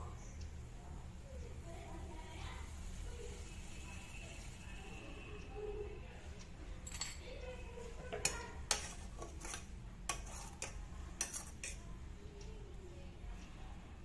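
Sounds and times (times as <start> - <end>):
spoon clinking against metal pan: 8.1 - 11.8.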